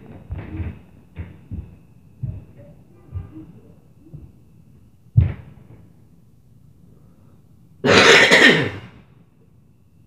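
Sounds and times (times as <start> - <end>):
heavy thud from floor above: 5.2 - 5.8
person coughing loudly: 7.8 - 8.9.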